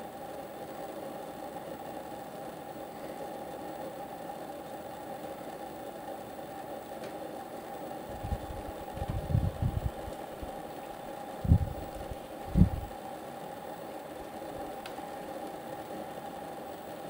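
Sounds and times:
steady mechanical hum: 0.0s - 17.0s
wind buffeting microphone: 8.2s - 10.1s, 11.4s - 12.9s.

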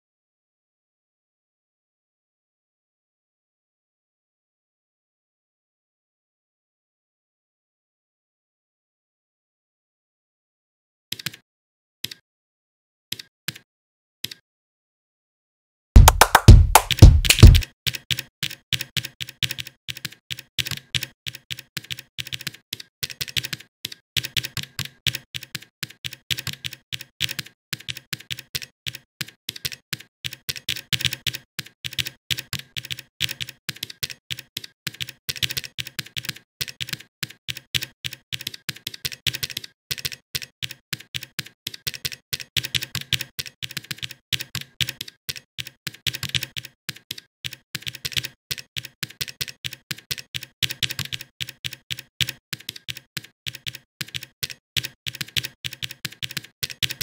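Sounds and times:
keyboard key clicks: 16.0s - 57.0s.

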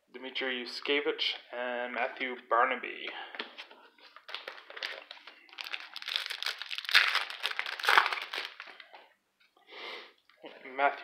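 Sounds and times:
plastic wrapper crinkling: 4.0s - 9.1s
wrapper snapping: 4.2s - 8.9s.

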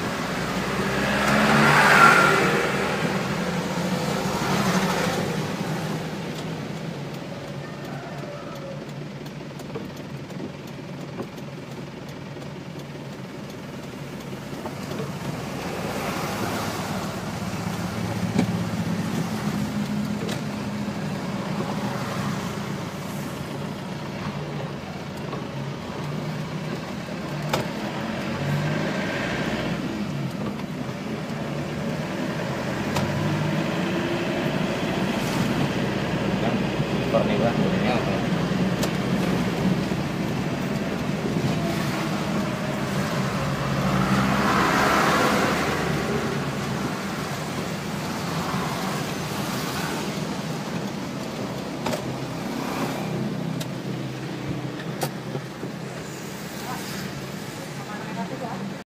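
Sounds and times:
passing vehicle swishing: 0.0s - 6.7s, 15.1s - 24.0s, 31.6s - 58.3s
vehicle engine running: 0.0s - 58.8s
tyre hiss on wet road: 55.8s - 58.1s.

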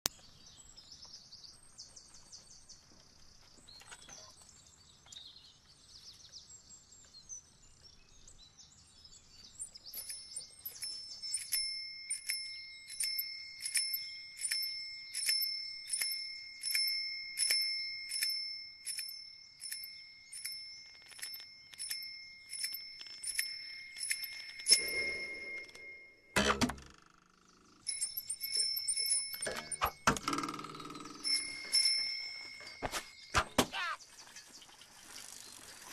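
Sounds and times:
birds chirping: 0.1s - 35.9s
signal bell ringing: 10.0s - 27.1s, 27.7s - 33.3s.

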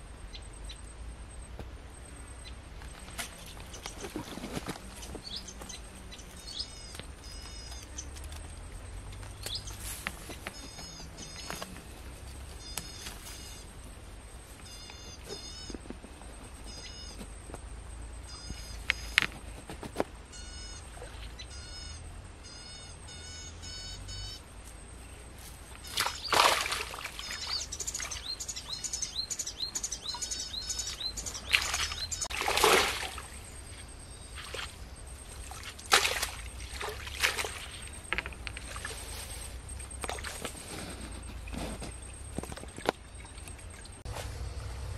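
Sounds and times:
small birds chirping: 2.0s - 19.6s, 20.2s - 44.7s
water splashing: 25.7s - 40.7s.

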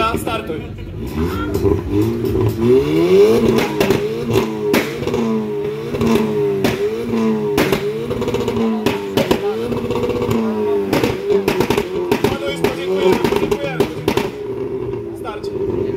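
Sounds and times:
car engine revving in quick blips: 1.0s - 15.8s
exhaust cracks and pops: 3.4s - 15.0s.

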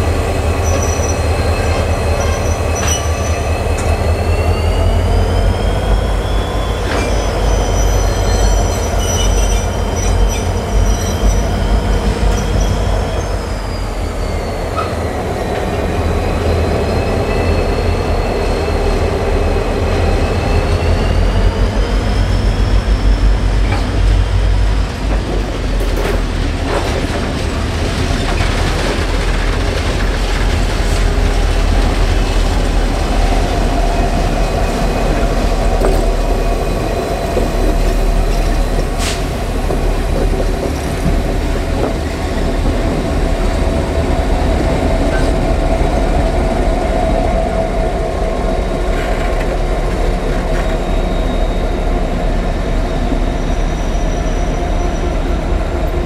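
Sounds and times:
locomotive engines rumbling: 0.0s - 56.0s
high-pitched wheel squeals: 0.6s - 15.2s, 50.4s - 52.2s, 52.8s - 55.3s.

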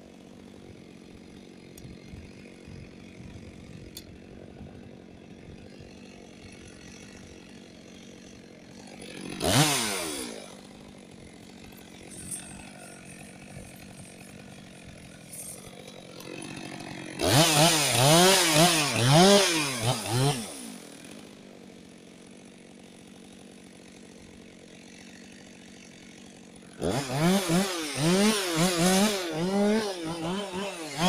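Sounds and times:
chainsaw idling and revving: 0.0s - 31.0s.

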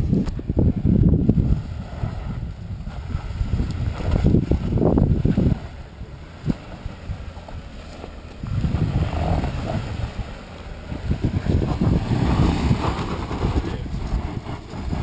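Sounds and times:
car engine crawling over rocks: 0.0s - 15.0s.

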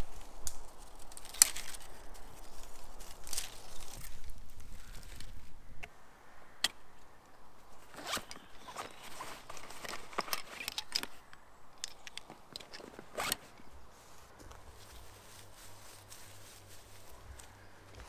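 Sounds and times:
backpack fabric rustling: 7.8s - 11.1s, 12.3s - 18.0s
zip pulled open and shut: 7.8s - 11.1s, 12.6s - 13.6s.

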